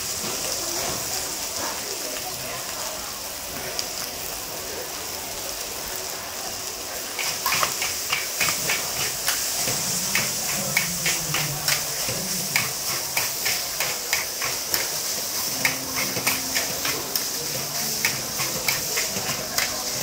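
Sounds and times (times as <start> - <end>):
rice sizzling in wok: 0.0 - 20.0
metal utensils clanking on wok: 7.2 - 20.0.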